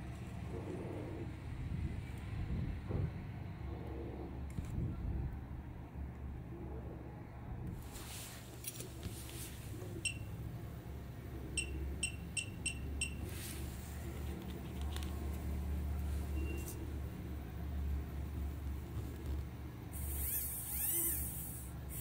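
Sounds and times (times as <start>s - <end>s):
rustling handling noise: 7.8s - 10.0s, 13.2s - 16.8s.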